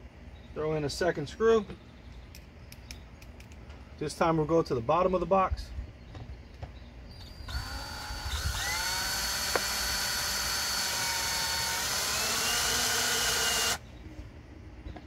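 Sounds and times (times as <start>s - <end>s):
cordless drill motor whine: 7.3s - 13.8s.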